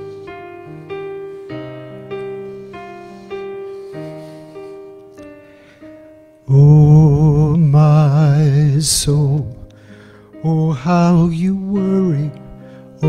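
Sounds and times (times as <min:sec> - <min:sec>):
gentle digital piano: 0:00.0 - 0:13.0
man singing with vibrato: 0:06.5 - 0:09.6, 0:10.4 - 0:12.4.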